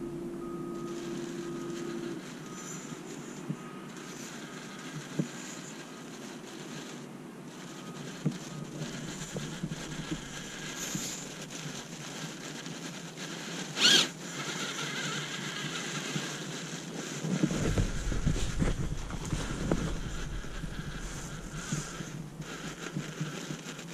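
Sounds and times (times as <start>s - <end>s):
rc car motor whining: 0.0s - 23.9s
tyres churning through snow: 0.0s - 23.9s
wind rumble on microphone: 17.3s - 23.9s.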